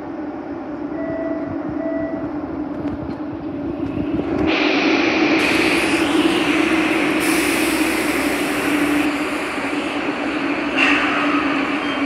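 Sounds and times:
subway train hum and rumble: 0.0s - 12.0s
train rushing noise: 0.0s - 12.0s
short beeps: 1.0s - 2.3s.

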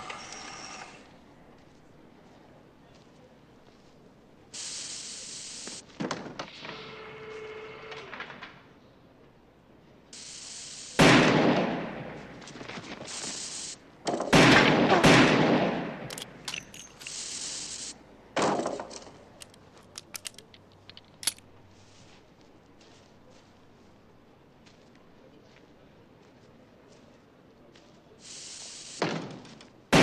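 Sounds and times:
steady hiss: 4.4s - 6.0s, 10.1s - 11.3s, 12.0s - 14.1s, 16.0s - 18.2s, 28.1s - 29.9s
revolver gunshots: 11.0s - 12.2s, 14.1s - 17.2s, 29.0s - 30.0s.

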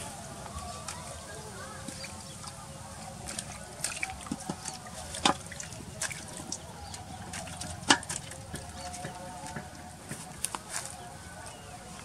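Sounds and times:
water splashing in metal basin: 1.8s - 10.3s.

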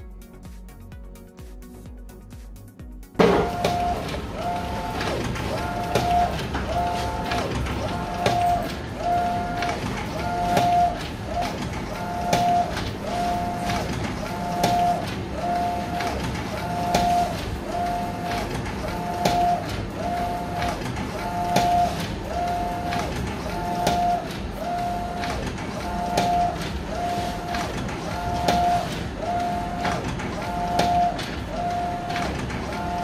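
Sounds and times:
printer carriage click: 3.2s - 15.3s, 18.3s - 19.8s, 20.6s - 22.2s, 22.9s - 24.4s, 25.2s - 26.8s, 27.5s - 29.1s
printer carriage motor whine: 3.2s - 33.0s.

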